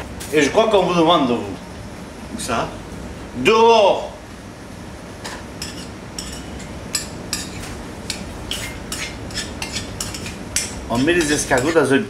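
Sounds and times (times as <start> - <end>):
dishes and utensils clinking: 5.2 - 11.9.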